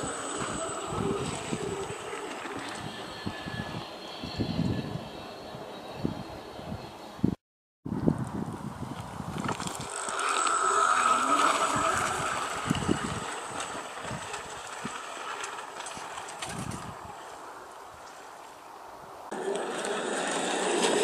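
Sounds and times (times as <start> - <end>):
electric motor whining: 0.0 - 7.0, 9.3 - 17.3, 19.3 - 21.0.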